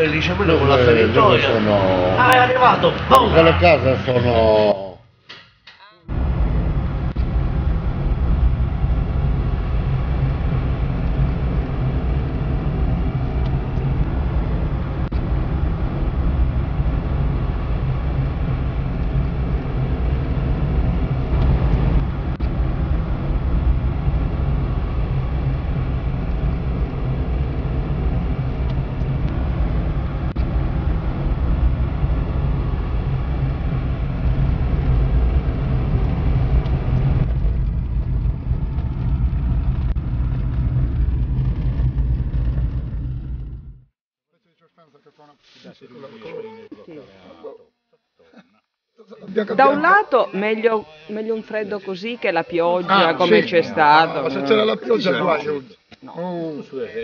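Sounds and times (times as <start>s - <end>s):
car engine from inside cabin: 0.0s - 4.6s, 6.1s - 44.0s
tyre road noise: 0.0s - 4.9s, 6.1s - 44.0s.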